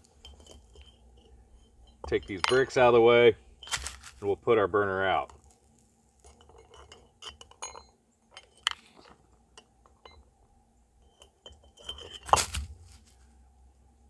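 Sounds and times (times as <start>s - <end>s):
brick clunk and scrape: 0.0s - 2.9s, 3.6s - 4.2s, 6.2s - 10.2s, 11.0s - 13.2s.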